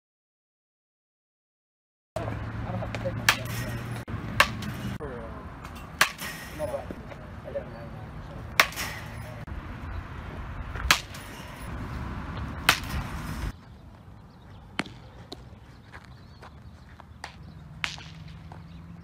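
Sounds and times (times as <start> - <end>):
low outdoor rumble: 2.2 - 19.0
bat cracking ball: 2.9 - 5.0, 5.7 - 7.0, 8.5 - 9.3, 10.7 - 11.7, 12.3 - 13.5, 14.7 - 15.5, 17.2 - 18.6.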